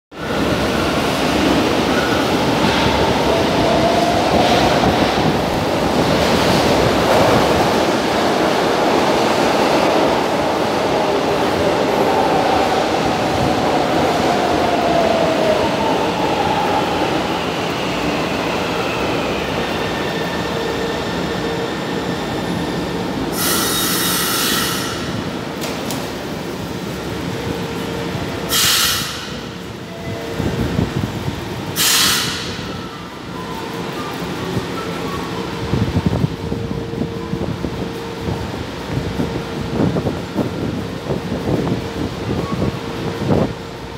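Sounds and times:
train wheels rumbling on rail: 0.1 - 43.9
burst of hiss: 28.5 - 29.2, 31.8 - 32.6.

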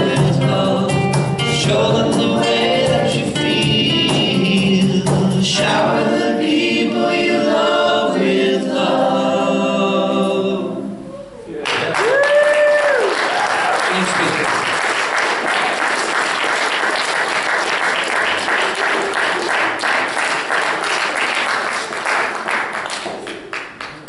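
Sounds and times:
audience applauding: 11.6 - 24.0.

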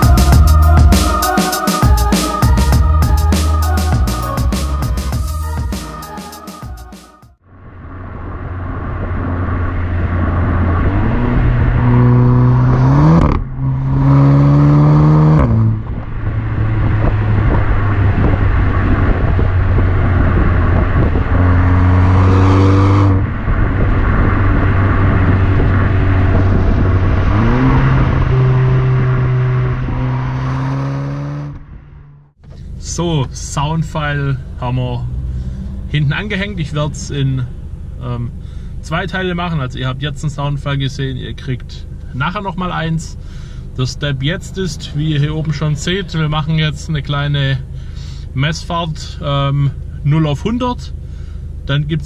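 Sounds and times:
road and wind noise: 7.4 - 52.0
car exhaust revving through gears: 7.6 - 33.6, 34.3 - 38.6.

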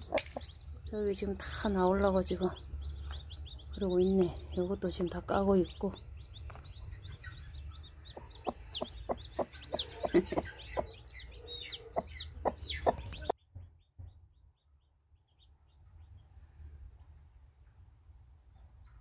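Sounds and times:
chicks peeping: 0.0 - 13.4
hen clucking: 0.0 - 13.4.

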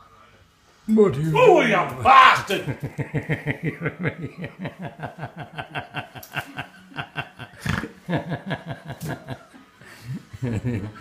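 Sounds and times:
person laughing hard: 2.0 - 9.5.

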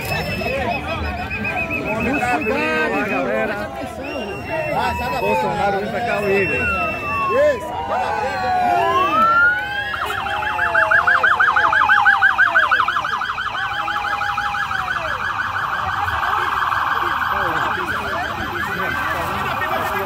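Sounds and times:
crowd voices: 0.0 - 20.0
siren yelping and warbling: 0.0 - 20.0.

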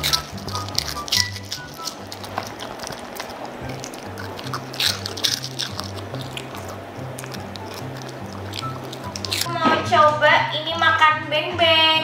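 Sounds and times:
dog crunching and chewing: 0.0 - 9.5.

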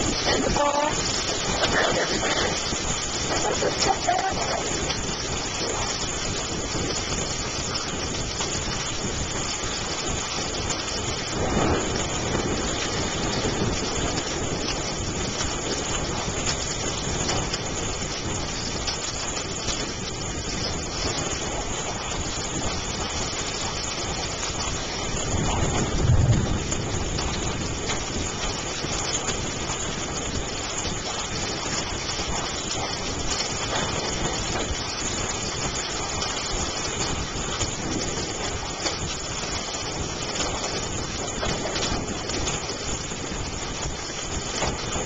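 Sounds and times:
heavy rain on street: 0.0 - 45.0.

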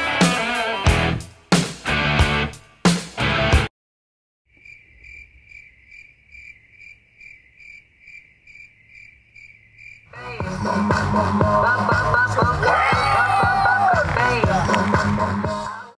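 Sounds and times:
guitar music: 0.0 - 2.6
music with a beat: 0.0 - 3.7, 10.2 - 15.9
cricket chirping: 4.5 - 10.1.

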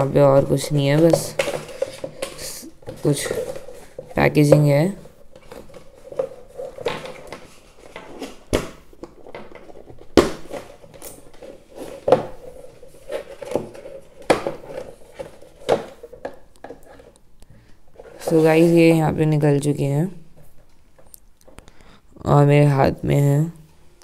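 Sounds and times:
earphones scraping packaging: 0.5 - 8.5, 9.1 - 17.2, 17.9 - 19.1.

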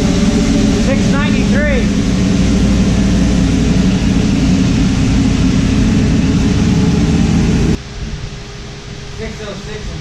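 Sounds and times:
car engine idling: 0.0 - 7.8.

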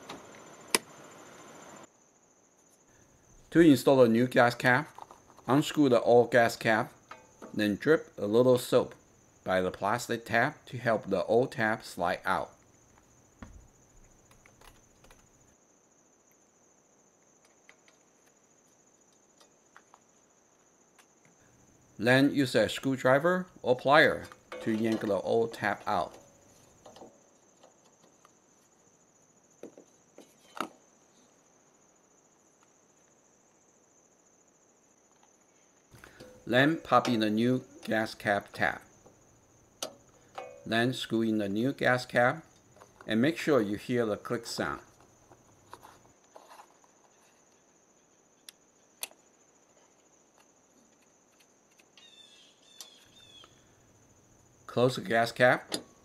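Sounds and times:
high insect trill: 0.0 - 56.0
faint chirping: 23.6 - 56.0
small plastic clicks: 48.4 - 49.2.

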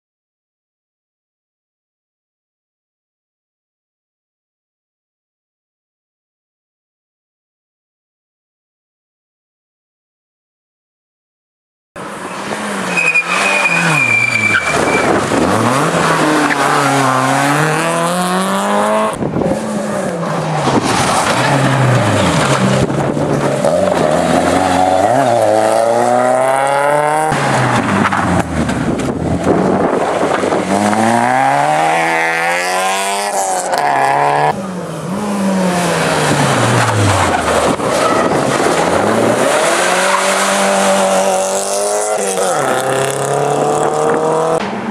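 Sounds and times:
rally car engines revving: 12.0 - 44.9
high squeal: 12.3 - 15.2.

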